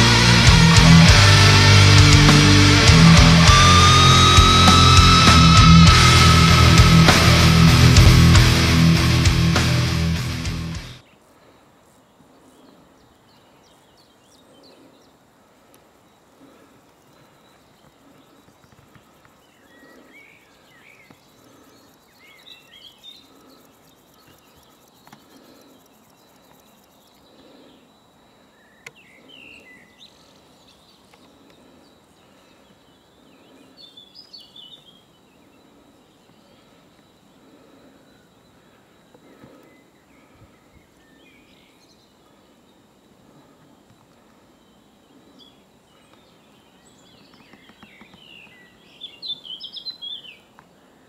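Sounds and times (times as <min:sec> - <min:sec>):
small birds chirping: 0:10.8 - 0:51.0.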